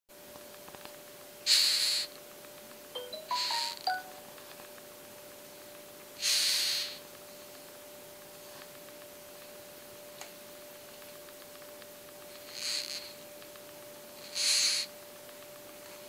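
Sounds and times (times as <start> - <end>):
faint steady hum: 0.1 - 16.0
beetle stridulating rasp: 14.2 - 14.9.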